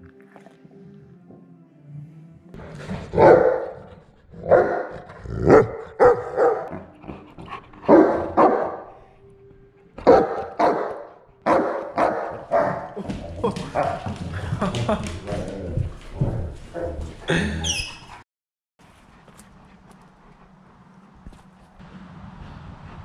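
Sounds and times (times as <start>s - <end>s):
dog barking loudly: 3.1s - 6.9s, 7.9s - 8.9s, 10.0s - 13.0s.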